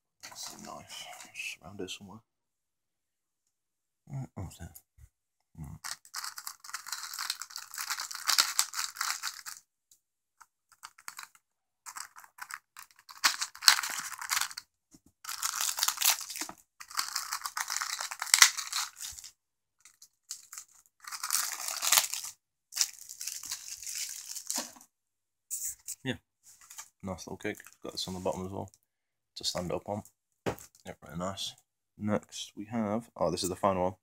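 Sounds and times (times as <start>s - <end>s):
plastic ripping and crinkling: 5.8s - 9.6s, 10.7s - 14.6s, 15.2s - 24.8s
knife slitting plastic wrapping: 15.3s - 19.3s.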